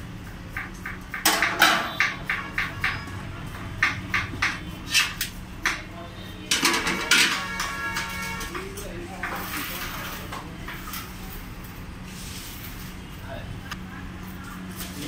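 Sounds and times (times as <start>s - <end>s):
metal cans clanking: 6.5s - 9.7s.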